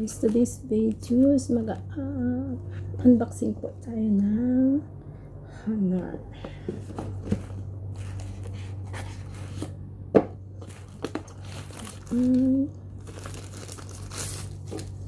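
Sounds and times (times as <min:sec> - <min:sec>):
paper packaging rustling: 0:06.8 - 0:09.8, 0:10.6 - 0:15.0.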